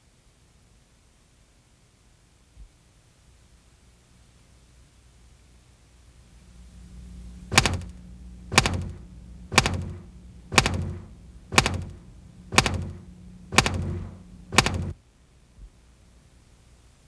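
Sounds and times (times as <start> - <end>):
low steady hum: 5.0 - 17.0
sharp knock-like clicks: 7.4 - 15.0.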